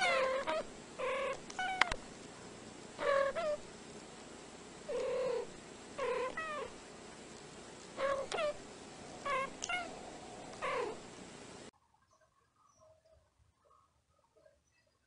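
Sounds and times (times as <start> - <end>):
cat chirping meows: 0.0 - 2.0, 3.0 - 3.6, 9.2 - 10.0.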